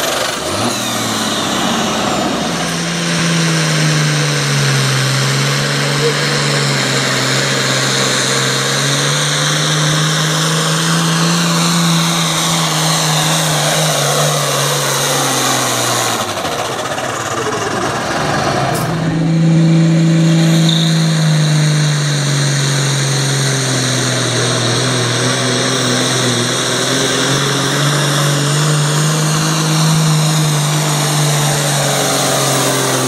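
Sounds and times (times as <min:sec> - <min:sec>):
diesel tractor engine: 0:00.0 - 0:33.0
high turbo whistle: 0:18.4 - 0:23.3.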